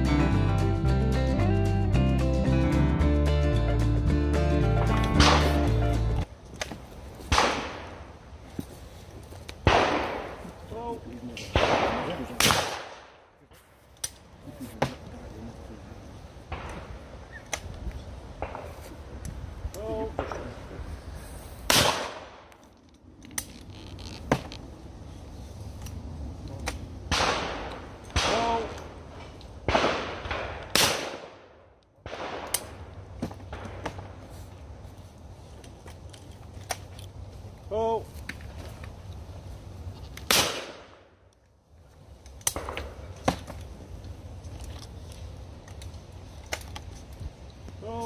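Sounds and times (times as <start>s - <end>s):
shotgun shot with echo: 5.1s - 5.7s, 7.3s - 7.9s, 9.6s - 10.4s, 11.5s - 13.2s, 21.7s - 22.4s, 27.1s - 28.7s, 29.7s - 31.5s, 40.3s - 41.0s
gun opening clicks: 21.8s - 24.6s.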